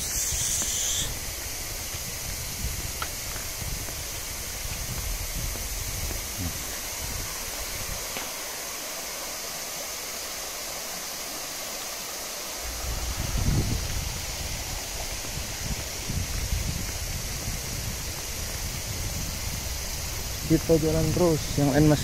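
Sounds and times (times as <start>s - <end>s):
stream water rushing: 0.0s - 22.0s
low rumble: 12.6s - 16.8s.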